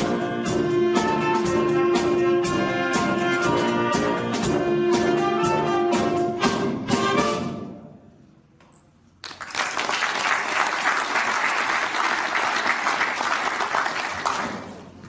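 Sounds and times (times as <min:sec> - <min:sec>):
audience applause: 0:09.2 - 0:15.0.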